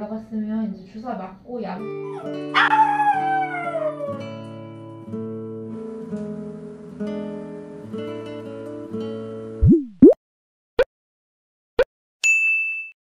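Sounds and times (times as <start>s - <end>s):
soft acoustic guitar music: 1.8s - 9.6s
dog crying: 2.0s - 4.2s.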